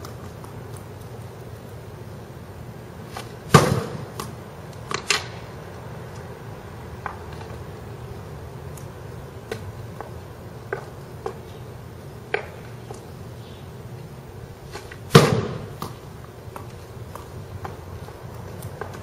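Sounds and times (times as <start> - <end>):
hockey shot smack: 3.1 - 4.3, 14.8 - 16.0
hockey stick tapping a ball: 9.4 - 11.5, 12.3 - 13.1.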